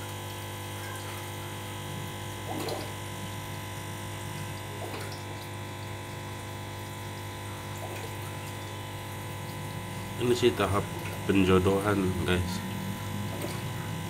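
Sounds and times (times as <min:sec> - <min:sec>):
electric pump hum: 0:00.0 - 0:14.0
water moving: 0:07.6 - 0:14.0.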